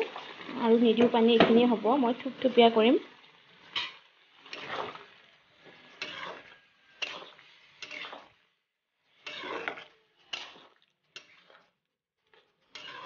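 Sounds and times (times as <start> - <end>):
metal spatula scraping a pan: 3.2 - 13.0.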